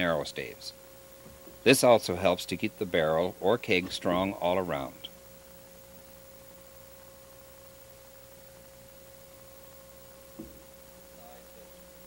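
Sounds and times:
faint electrical hum: 0.0 - 12.0
soft knock: 10.4 - 10.7.

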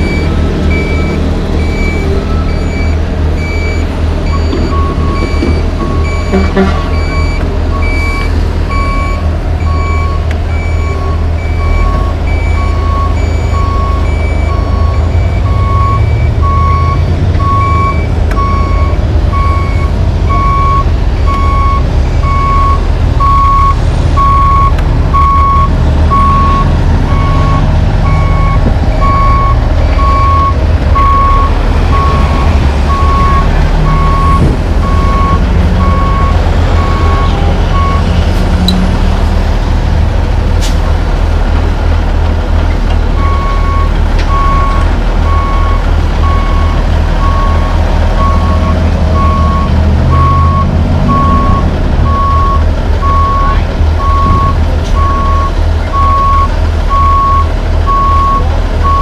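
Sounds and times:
truck backup alarm beeping: 0.0 - 38.8, 43.1 - 59.0
diesel engine rumble: 0.0 - 59.0.

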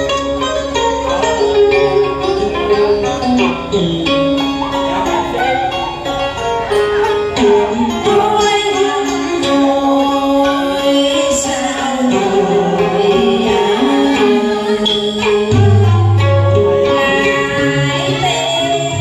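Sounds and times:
instrumental accompaniment: 0.0 - 19.0
woman singing into a microphone: 7.1 - 19.0.

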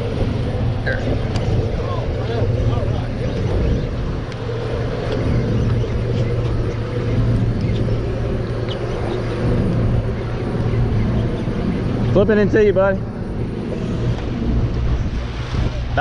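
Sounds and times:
boat engines humming: 0.0 - 16.0
wind buffeting microphone: 0.0 - 16.0.

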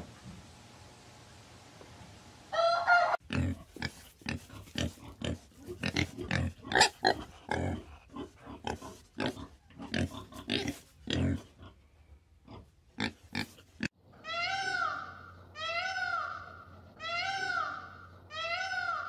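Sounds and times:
chicken call: 2.5 - 3.2, 14.2 - 19.0.

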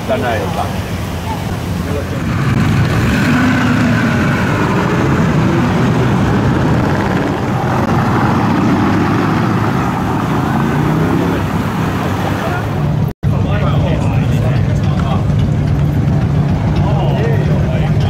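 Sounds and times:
v eight engine and exhaust drone: 0.0 - 18.0.

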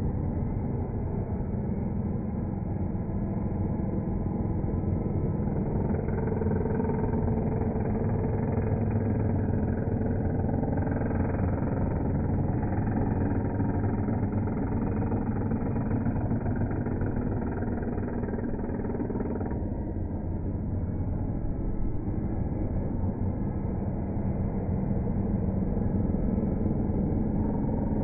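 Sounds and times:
electric hand planer cutting wood: 6.5 - 19.6.

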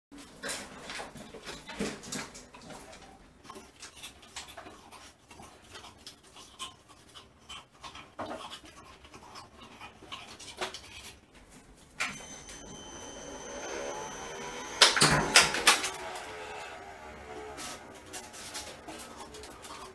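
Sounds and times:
dog panting and sniffing: 3.4 - 11.3, 17.8 - 19.9
motor whine: 12.0 - 19.9.

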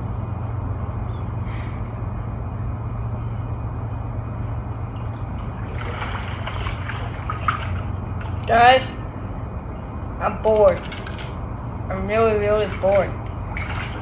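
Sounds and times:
low motor hum: 0.0 - 14.0
water sloshing and splashing: 4.8 - 9.0, 12.0 - 14.0
churning water rushing: 4.9 - 9.2, 12.1 - 14.0
bird chirping: 9.7 - 10.9.

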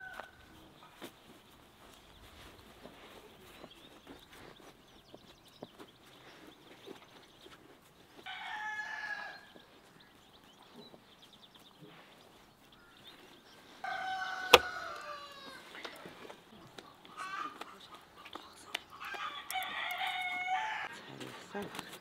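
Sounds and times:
rooster crowing: 8.3 - 9.4, 13.8 - 15.7, 19.1 - 20.9.

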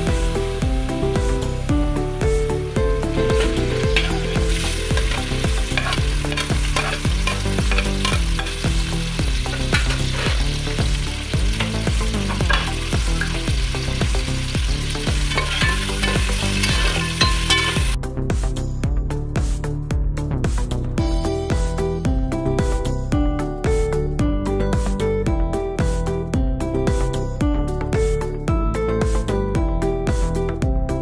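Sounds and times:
onions frying in hot oil: 0.0 - 18.0
background music with bass line: 0.0 - 31.0
spoon stirring in pot: 3.4 - 8.6, 11.6 - 13.5, 15.0 - 18.0.

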